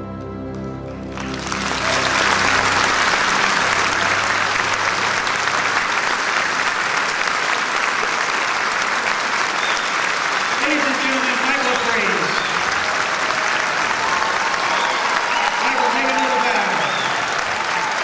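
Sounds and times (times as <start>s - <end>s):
orchestra final chord: 0.0s - 6.8s
audience applauding: 0.5s - 18.0s.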